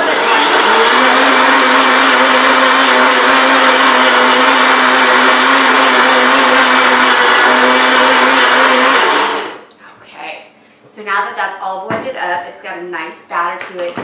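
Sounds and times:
blender running: 0:00.0 - 0:09.7.

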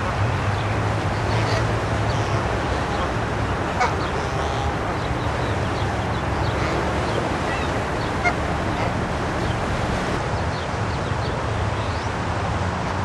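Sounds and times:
steady rushing background noise: 0:00.0 - 0:13.0
goslings peeping: 0:01.2 - 0:09.7
goose call: 0:07.5 - 0:09.0.

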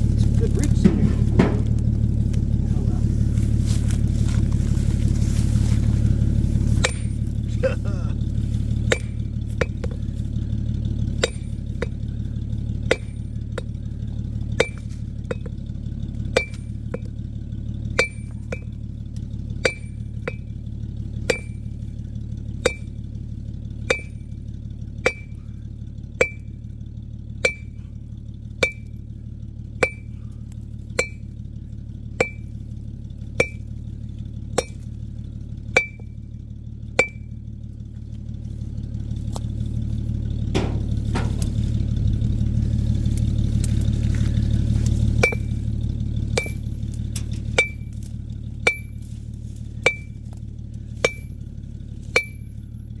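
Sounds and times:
steady low hum: 0:00.0 - 0:53.0
digging tool clinking on rock: 0:06.8 - 0:07.2, 0:14.6 - 0:15.6, 0:19.7 - 0:20.5, 0:23.9 - 0:24.2, 0:25.1 - 0:25.4, 0:26.2 - 0:26.5, 0:27.4 - 0:27.7, 0:29.8 - 0:30.1, 0:32.2 - 0:32.5, 0:33.4 - 0:33.6, 0:34.6 - 0:34.9, 0:45.2 - 0:45.6, 0:46.4 - 0:48.0, 0:48.7 - 0:49.0, 0:51.0 - 0:51.4, 0:52.2 - 0:52.6.

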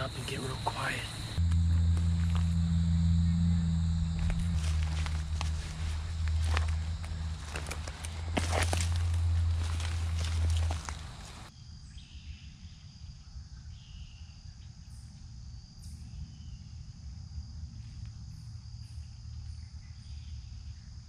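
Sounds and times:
crickets and insects droning: 0:00.0 - 0:21.0
footsteps crunching dry leaves: 0:01.2 - 0:02.6, 0:04.1 - 0:11.5.

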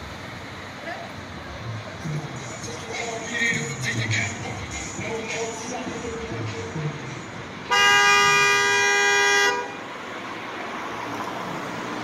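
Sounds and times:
outdoor background noise: 0:00.0 - 0:12.0
car horn blast: 0:07.7 - 0:09.8.

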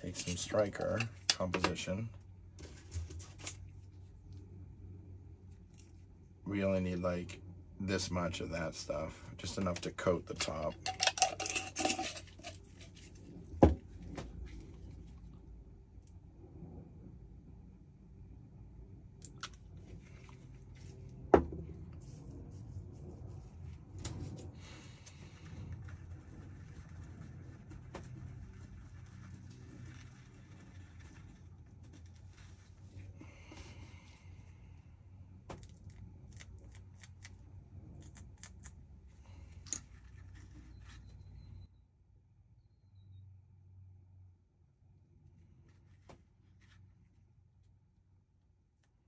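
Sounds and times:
light clicks and scrapes: 0:00.0 - 0:02.0
low steady hum: 0:00.0 - 0:49.0.

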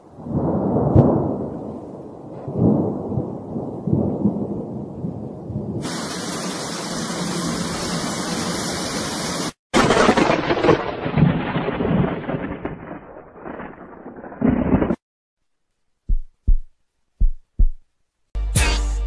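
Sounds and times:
thunder rumbling: 0:00.0 - 0:09.0, 0:09.8 - 0:15.0
steady loud hiss: 0:05.8 - 0:09.6.

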